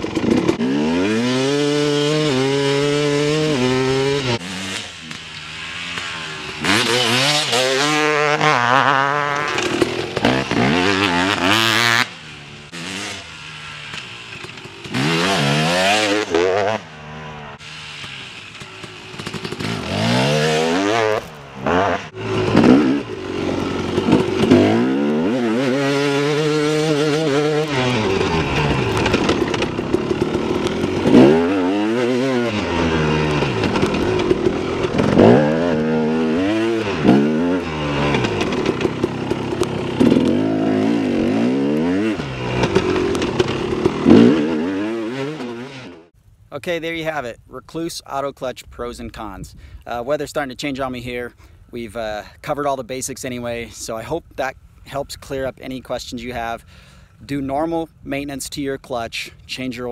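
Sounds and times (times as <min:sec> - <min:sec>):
dirt bike engine revving: 0:00.0 - 0:46.8.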